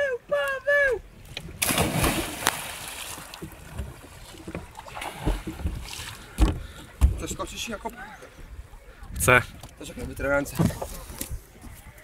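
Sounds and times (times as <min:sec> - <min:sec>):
water sloshing: 0:01.2 - 0:08.5
diver splashing into water: 0:01.6 - 0:03.7
thumps against boat side: 0:06.4 - 0:07.4.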